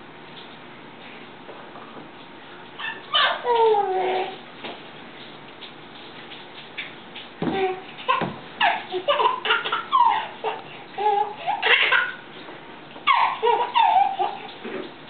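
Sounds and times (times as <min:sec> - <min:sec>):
baby laughing: 0:02.8 - 0:04.3, 0:07.5 - 0:12.3, 0:13.0 - 0:14.6.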